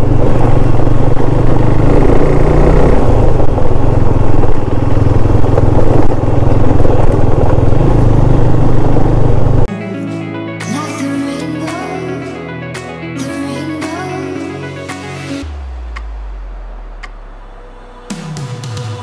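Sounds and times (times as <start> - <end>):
motorcycle engine running: 0.0 - 9.7.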